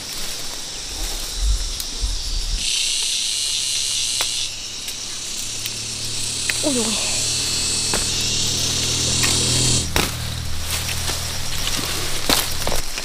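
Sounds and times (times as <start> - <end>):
insects buzzing: 0.0 - 13.0
low rumble: 0.4 - 2.7, 3.8 - 12.8
louder buzz: 0.6 - 12.7
sharp clicks: 4.0 - 10.1.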